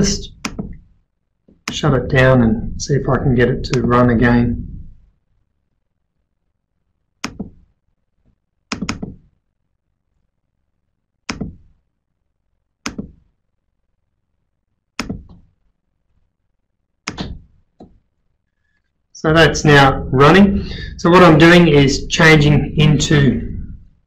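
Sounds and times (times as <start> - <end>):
sharp clicks and knocks: 0.3 - 1.8, 7.2 - 7.7, 8.3 - 9.4, 11.3 - 11.8, 12.8 - 13.3, 15.0 - 15.6, 17.0 - 18.0.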